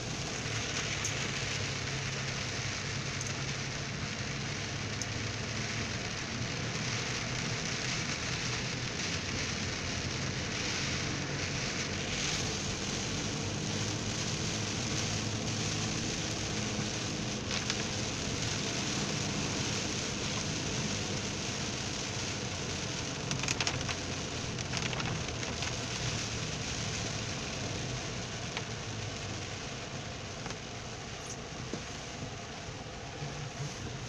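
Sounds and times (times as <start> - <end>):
car engine hum: 0.0 - 34.0
heavy rain on car windshield: 0.0 - 34.0.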